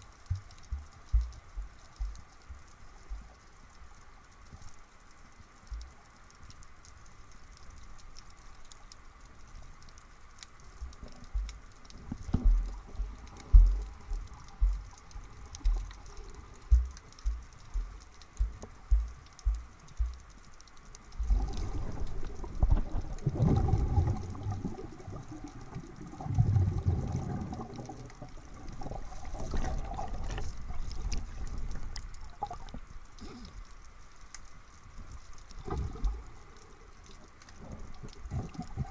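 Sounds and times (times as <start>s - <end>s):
low thumps of water underwater: 0.0s - 4.8s, 5.5s - 6.6s, 9.4s - 38.9s
water rushing and bubbling: 10.7s - 38.9s.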